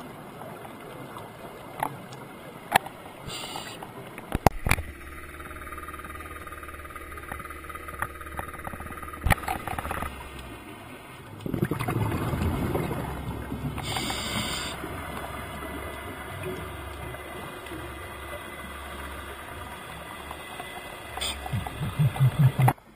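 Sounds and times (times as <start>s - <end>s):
faint steady drone: 0.0s - 22.9s
bubbles streaming: 11.2s - 22.8s
diver exhaling through regulator: 13.8s - 14.8s.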